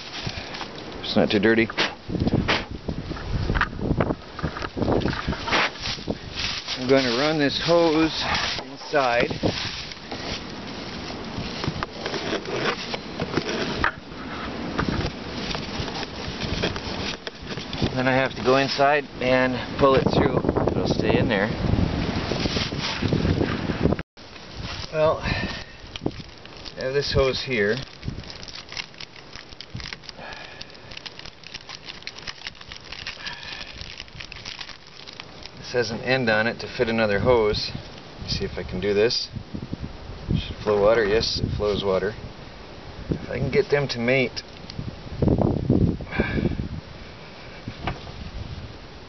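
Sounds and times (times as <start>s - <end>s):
light crackling and rustling: 0.0s - 21.4s, 22.0s - 39.2s.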